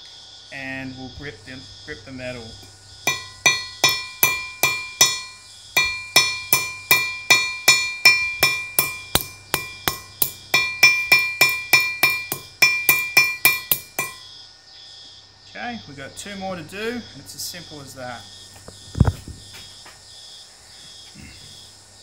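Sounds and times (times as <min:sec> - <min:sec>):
hammer tapping metal rivet: 0:03.1 - 0:14.2.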